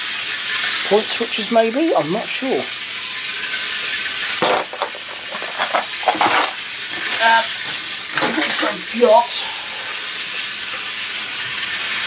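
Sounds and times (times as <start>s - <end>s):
model railway pieces clattering: 4.4s - 7.2s.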